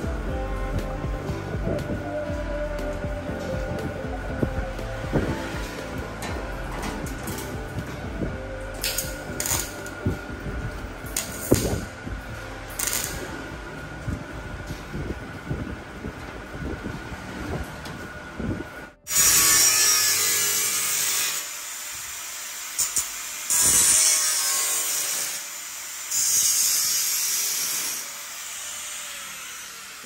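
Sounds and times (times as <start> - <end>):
low rumble with knocks: 1.0 - 9.4
angle grinder on steel: 19.1 - 30.0.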